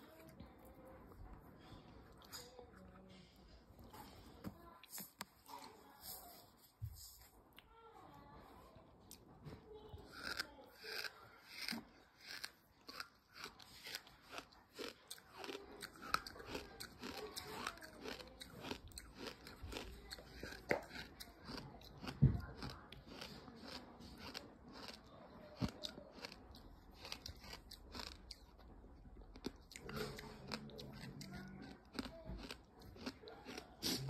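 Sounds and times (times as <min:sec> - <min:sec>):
chewing gritty sand: 0:09.9 - 0:34.0.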